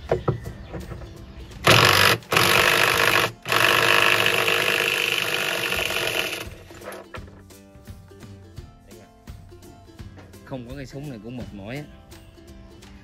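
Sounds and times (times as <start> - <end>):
impact wrench hammering on nut: 1.7 - 6.4.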